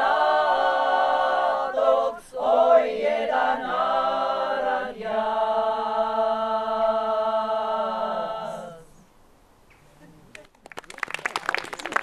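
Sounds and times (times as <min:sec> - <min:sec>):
women singing a cappella: 0:00.0 - 0:09.1.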